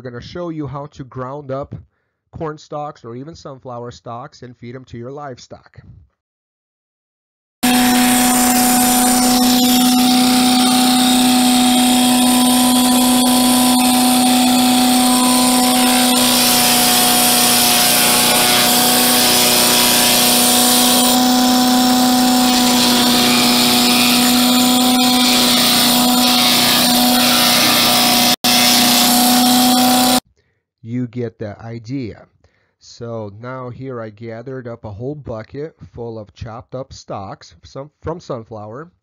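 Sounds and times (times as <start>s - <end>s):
chipper shredder engine running: 7.6s - 30.2s.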